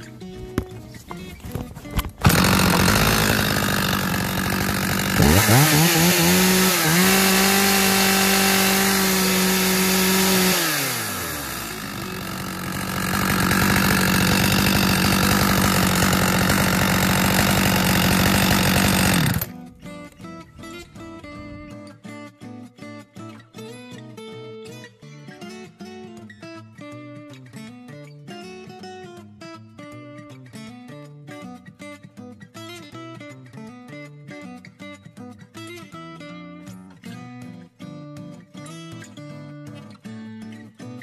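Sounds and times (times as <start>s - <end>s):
chainsaw engine idling and revving: 2.0s - 19.6s.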